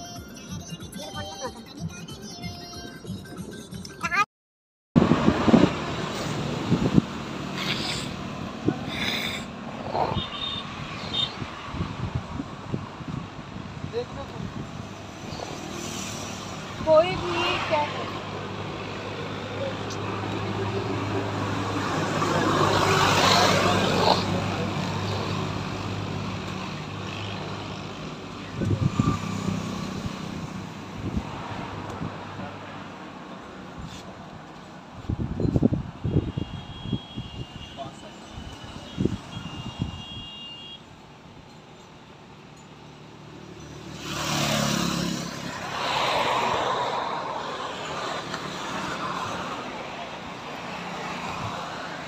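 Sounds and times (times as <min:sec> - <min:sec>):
road traffic noise: 0:00.0 - 0:04.3, 0:05.0 - 0:52.0
vehicle passing close by: 0:43.7 - 0:52.0.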